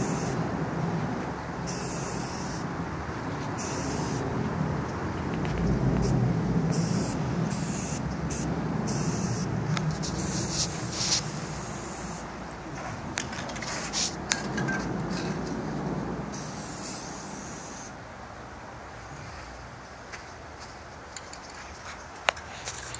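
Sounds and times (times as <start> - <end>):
spray paint can hissing: 6.7 - 12.3, 16.3 - 17.9.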